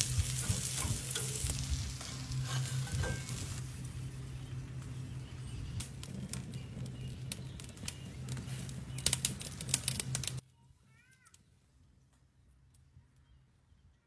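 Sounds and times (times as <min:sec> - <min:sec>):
meat sizzling on a grill: 0:00.0 - 0:10.4.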